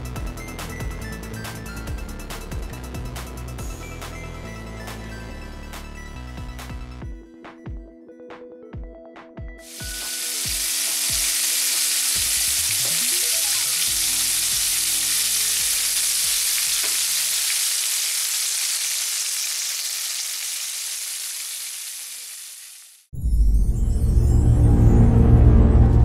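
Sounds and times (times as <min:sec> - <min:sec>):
background music: 0:00.0 - 0:17.2
fish frying in hot oil: 0:09.6 - 0:23.1.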